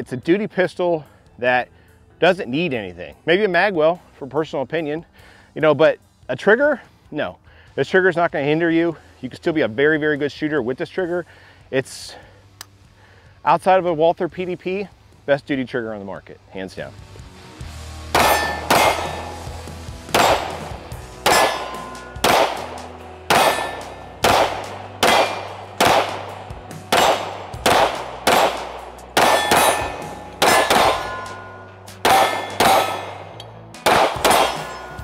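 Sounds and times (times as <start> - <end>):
pistol shots ringing: 18.1 - 35.0.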